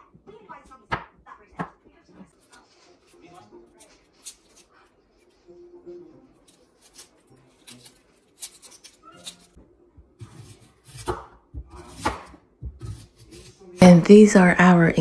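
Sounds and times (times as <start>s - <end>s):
knife cutting onion: 6.4s - 9.6s, 10.2s - 14.0s.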